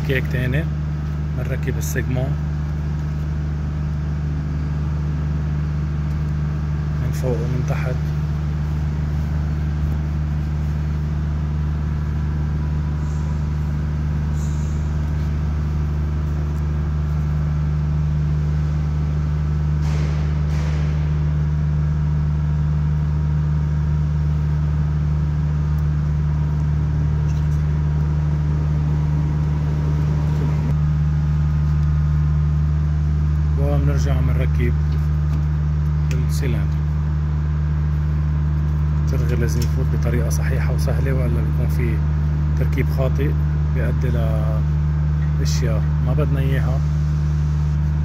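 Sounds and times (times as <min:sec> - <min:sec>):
low machinery hum: 0:00.0 - 0:48.0.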